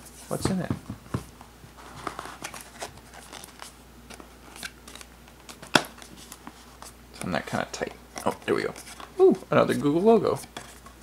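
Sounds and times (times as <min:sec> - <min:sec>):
cardboard scraping and rubbing: 0:01.8 - 0:03.7.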